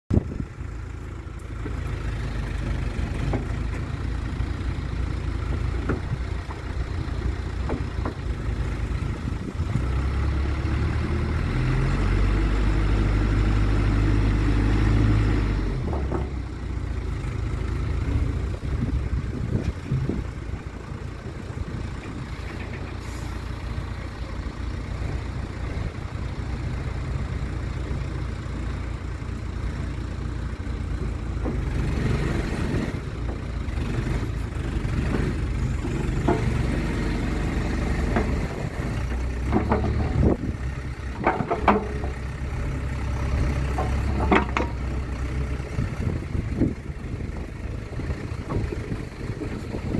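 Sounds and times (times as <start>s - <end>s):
excavator diesel engine running: 0.1s - 49.9s.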